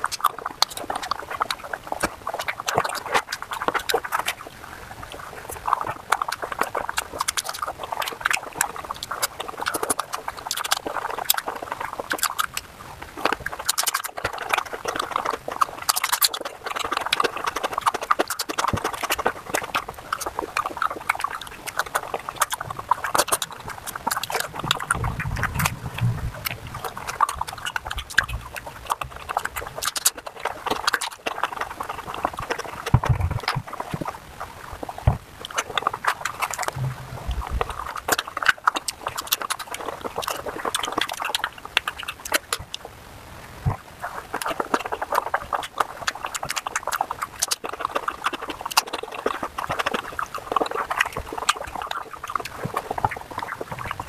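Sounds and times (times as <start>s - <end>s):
wet chewing and lip-smacking: 0.0s - 54.0s
dull low knocks: 36.7s - 37.8s.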